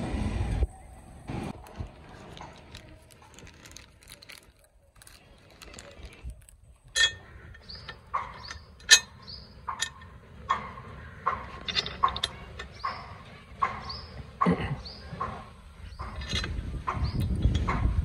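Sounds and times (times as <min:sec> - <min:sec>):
metal bolts rattling in plastic packet: 0:01.9 - 0:09.1.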